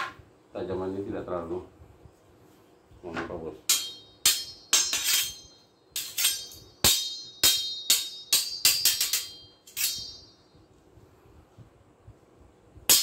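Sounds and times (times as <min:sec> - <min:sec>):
machete blades clashing: 0:03.7 - 0:10.5.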